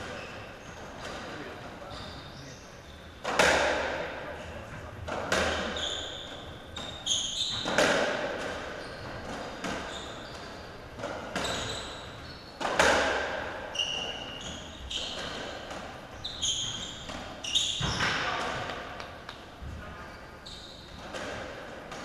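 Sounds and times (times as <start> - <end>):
shoes squeaking on court floor: 0.0 - 3.5, 4.8 - 22.0
ball smacking off rackets and walls: 7.5 - 10.0, 12.6 - 13.5.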